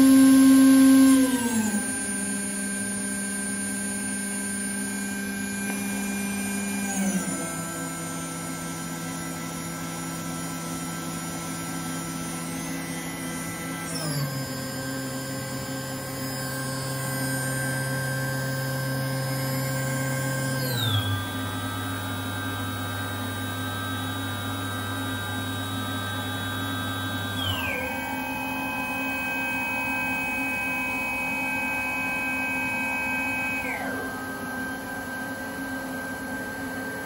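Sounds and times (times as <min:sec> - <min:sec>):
router spindle whining: 0:00.0 - 0:37.0.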